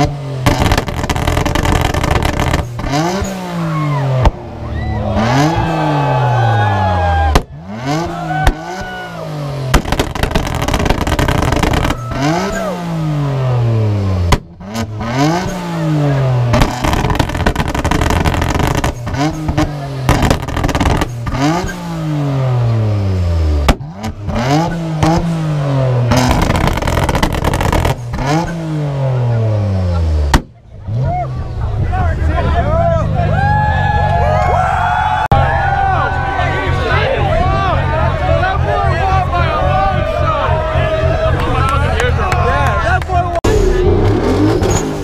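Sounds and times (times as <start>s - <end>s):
sharp bangs: 0.0s - 6.0s, 7.2s - 13.4s, 14.2s - 22.6s, 23.6s - 29.1s
car engine revving: 0.0s - 45.0s.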